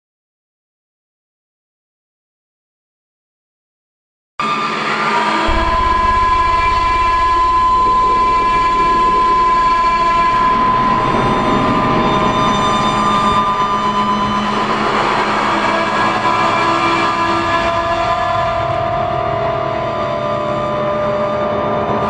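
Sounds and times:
dark ambient drone: 4.8 - 22.0
low pulsing rumble: 5.5 - 16.6
steady held tone: 5.5 - 17.0.

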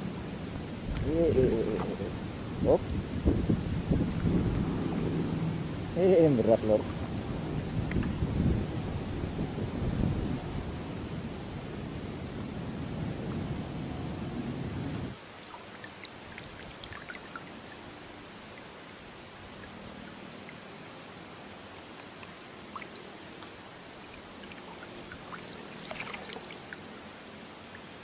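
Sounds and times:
water trickling and dripping: 6.6 - 8.3, 14.9 - 26.9, 27.6 - 28.0
light splashes: 14.9 - 18.7, 21.7 - 26.9.

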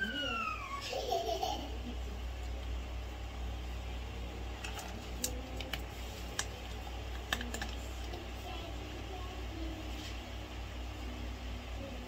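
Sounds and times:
low hum: 0.0 - 12.0
cat crunching dry kibble: 4.6 - 7.8.

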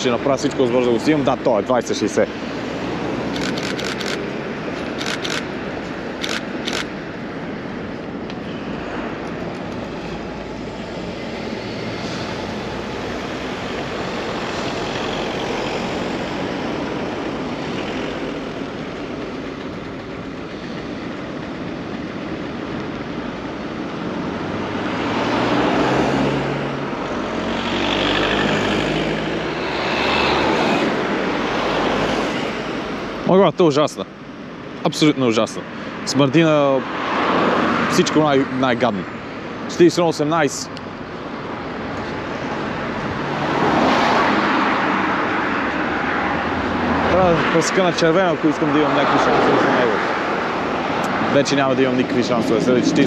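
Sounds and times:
heavy vehicles passing close: 0.0 - 53.0
traffic on wet street: 0.0 - 53.0
sharp clicks: 3.3 - 4.2, 4.8 - 5.5, 6.2 - 6.9.

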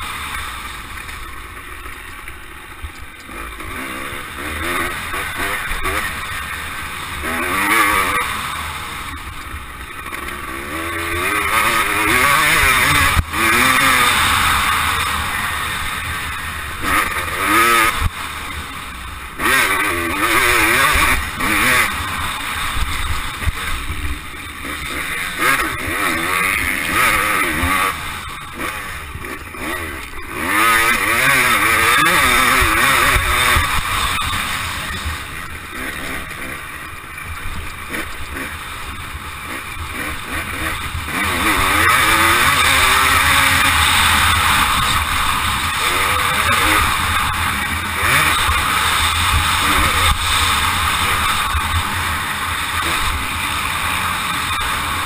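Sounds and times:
motocross bike engine revving: 0.0 - 55.0.

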